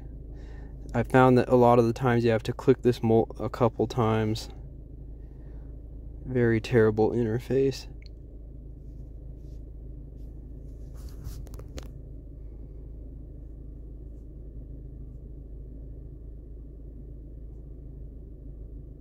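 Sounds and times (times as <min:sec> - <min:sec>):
car engine idling: 0:00.0 - 0:19.0
light clicks and rustles: 0:10.8 - 0:12.0.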